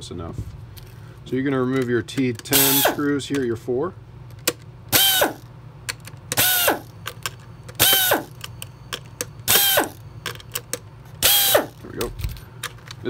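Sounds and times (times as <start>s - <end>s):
steady low hum: 0.0s - 13.0s
electric screwdriver whirring: 2.5s - 3.1s, 5.0s - 5.5s, 6.4s - 6.9s, 7.8s - 8.4s, 9.5s - 10.0s, 11.2s - 11.8s.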